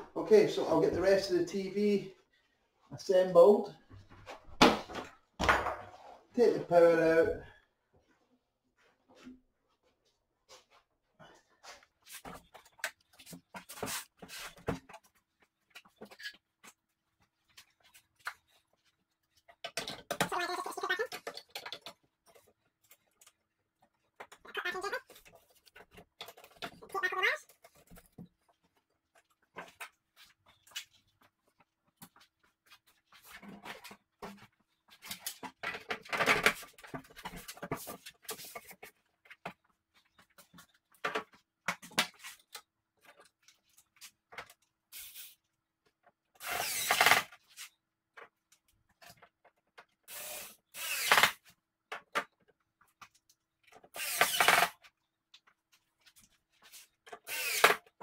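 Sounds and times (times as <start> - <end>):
cordless drill driving screws: 46.4 - 47.3, 50.1 - 51.4, 53.9 - 54.7, 57.2 - 57.8.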